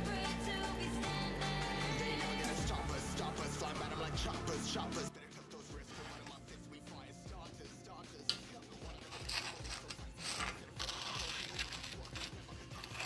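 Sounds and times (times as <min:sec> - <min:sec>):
stone scraping on metal: 0:05.8 - 0:06.4, 0:08.8 - 0:13.0.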